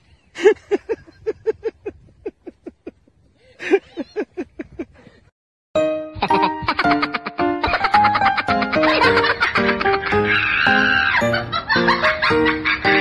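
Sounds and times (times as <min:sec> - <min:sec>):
person laughing: 0:00.4 - 0:05.1, 0:06.1 - 0:13.0
music: 0:05.8 - 0:13.0.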